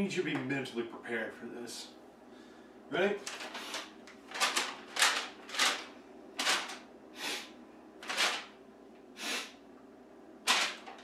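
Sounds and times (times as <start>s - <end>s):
paper rustling and flapping: 3.2s - 6.9s, 8.0s - 8.6s, 10.4s - 11.0s.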